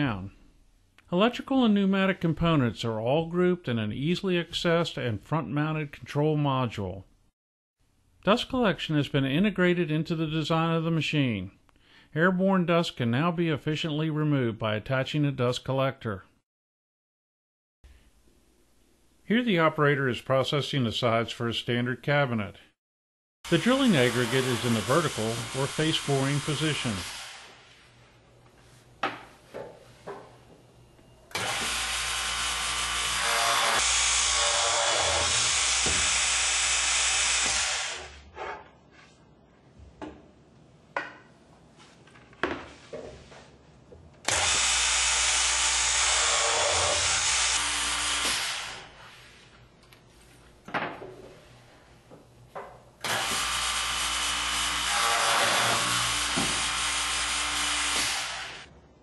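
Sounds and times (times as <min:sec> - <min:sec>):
boring machine drilling wood: 0:31.3 - 0:38.2, 0:44.2 - 0:48.9, 0:53.0 - 0:58.7.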